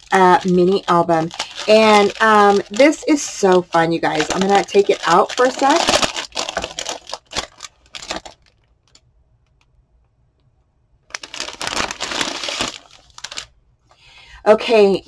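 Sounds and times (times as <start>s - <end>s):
plastic bag crinkling: 0.0s - 9.0s, 11.1s - 13.6s.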